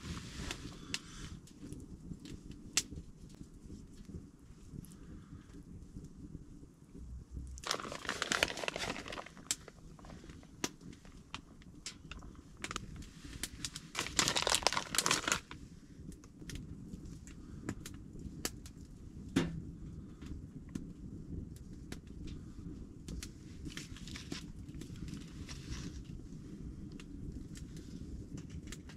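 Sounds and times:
packaging crinkling and rustling: 7.5s - 15.6s, 23.7s - 26.1s
small sharp cracks: 7.5s - 15.6s.

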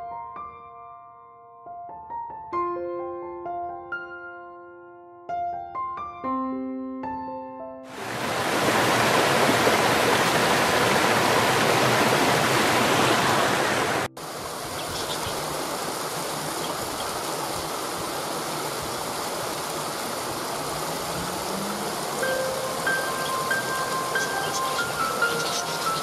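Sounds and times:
stream water rushing over rocks: 7.9s - 26.0s.

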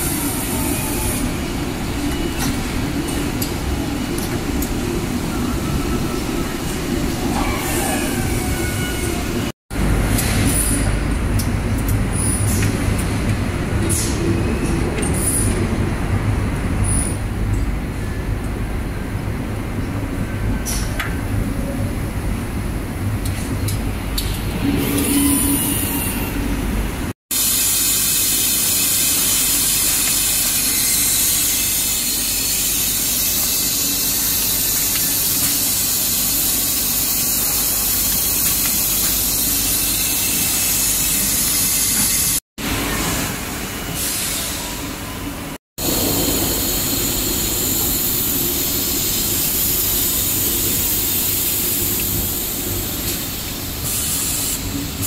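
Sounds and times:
air hissing: 27.3s - 42.4s, 45.8s - 54.8s
production line machinery: 27.3s - 55.0s.

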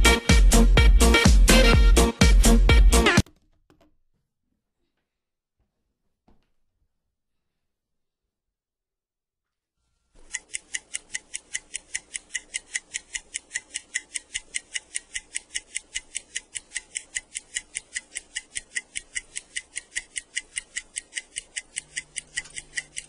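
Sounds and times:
fast clock ticking: 10.2s - 23.0s.

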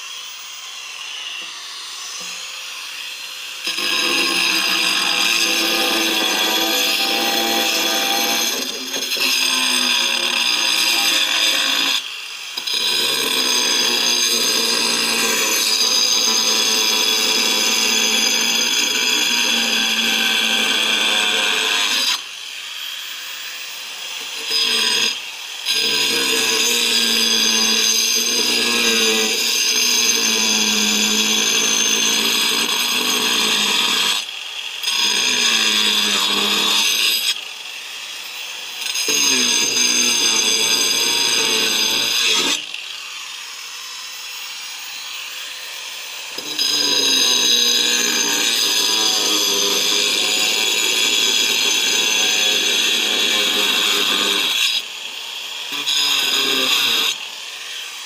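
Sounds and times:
angle grinder whine: 0.0s - 13.1s
gritty cutting noise: 0.0s - 58.0s.

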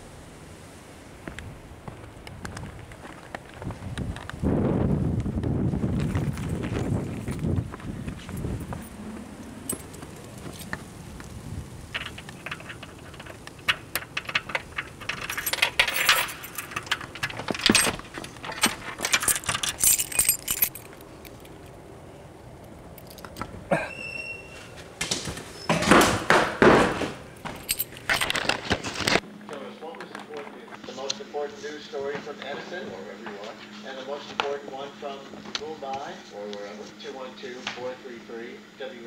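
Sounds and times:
keys jangling: 12.0s - 21.6s, 23.0s - 23.5s, 27.4s - 28.6s.

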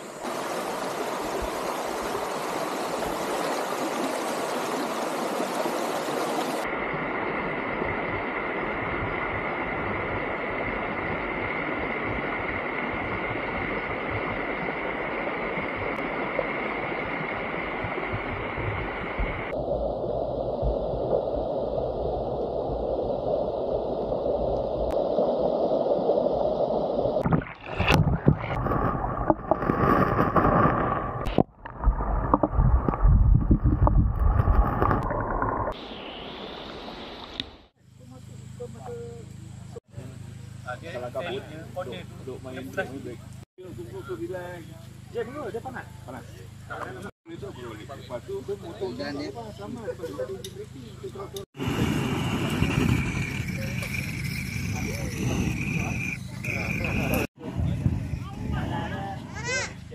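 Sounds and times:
stream running over stones: 0.0s - 37.7s, 51.5s - 57.3s
underwater knocks and sloshing: 27.2s - 35.8s.

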